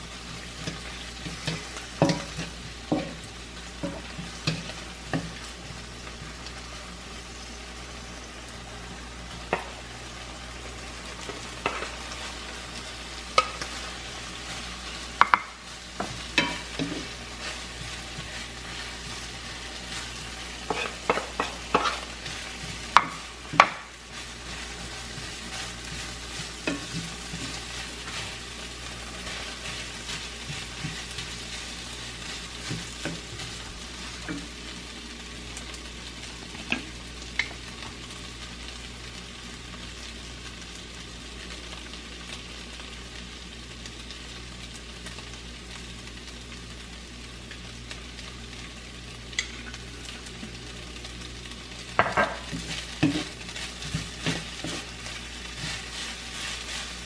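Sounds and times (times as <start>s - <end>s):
fried rice sizzling in a pan: 0.0s - 57.0s
spatula knocking on a pan: 2.0s - 3.2s, 22.9s - 23.9s
wooden spatula scraping a pan: 13.4s - 34.5s, 52.3s - 57.0s.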